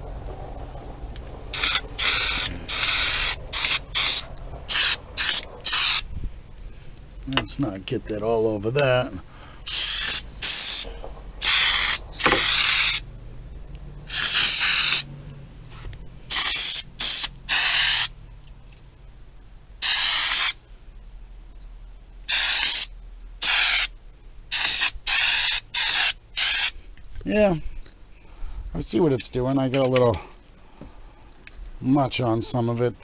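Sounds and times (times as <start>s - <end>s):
aerosol spray can hissing: 1.6s - 6.1s, 9.7s - 13.0s, 14.1s - 15.1s, 16.3s - 18.1s, 19.8s - 20.6s, 22.3s - 23.9s, 24.5s - 26.8s.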